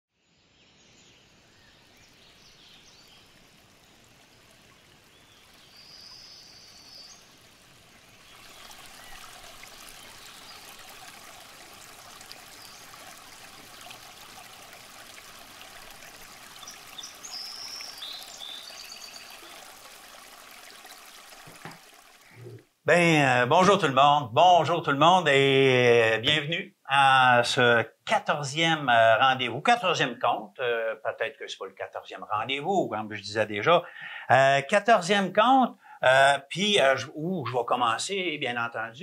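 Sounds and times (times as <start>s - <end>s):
water rushing over rocks: 7.3s - 22.6s.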